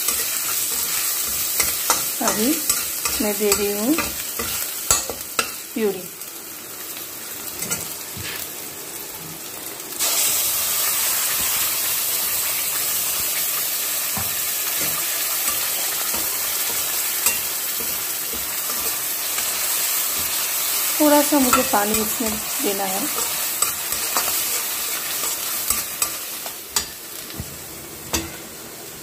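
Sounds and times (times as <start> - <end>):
spatula stirring in pan: 0.0 - 5.6, 14.2 - 27.4
onions frying in oil: 0.0 - 29.0.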